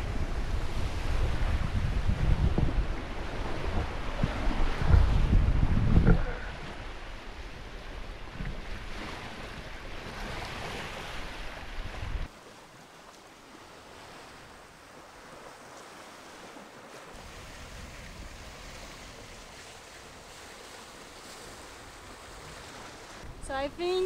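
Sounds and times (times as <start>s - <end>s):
wind buffeting microphone: 0.0s - 12.3s
water rushing along hull: 0.0s - 24.0s.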